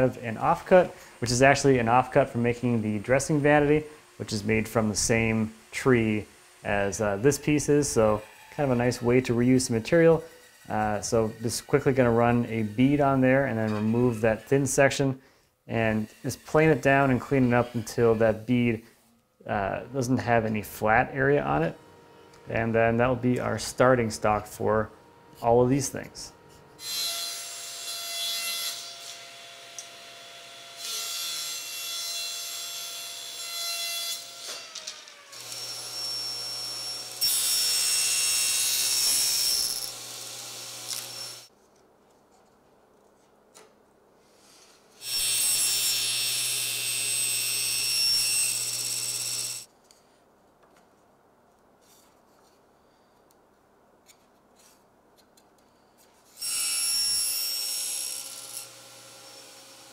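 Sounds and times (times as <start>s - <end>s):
power saw cutting wood: 2.6s - 14.7s, 25.4s - 41.5s, 45.0s - 49.7s, 56.4s - 59.9s.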